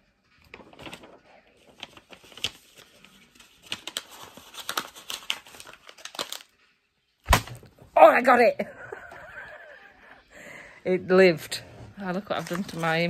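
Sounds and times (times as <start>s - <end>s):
paper leaflet crinkling: 0.3s - 6.6s, 12.2s - 13.0s.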